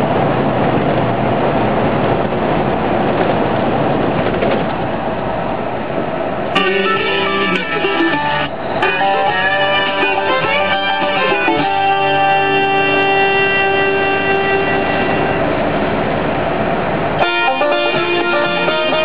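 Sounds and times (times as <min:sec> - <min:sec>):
guitar: 0:06.5 - 0:16.2, 0:17.0 - 0:19.0
banjo: 0:06.6 - 0:13.5, 0:17.2 - 0:19.0
bluegrass music on the radio: 0:06.6 - 0:15.0.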